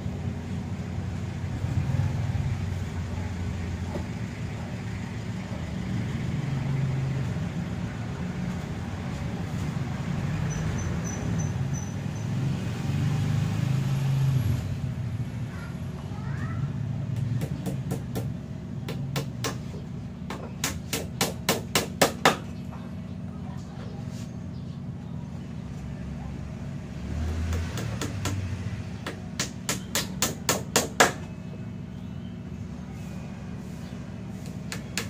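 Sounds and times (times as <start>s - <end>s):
sharp knocks like hammer blows: 17.1s - 22.5s, 27.3s - 31.3s, 34.7s - 35.0s.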